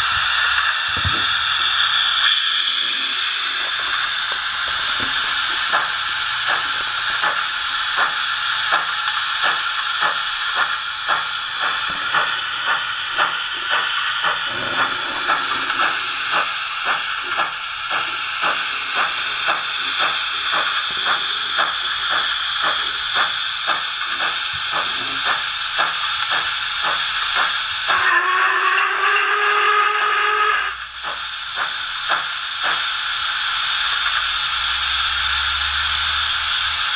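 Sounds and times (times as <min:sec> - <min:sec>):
continuous steam hiss: 0:00.0 - 0:36.9
steam locomotive chuffs: 0:00.0 - 0:36.9.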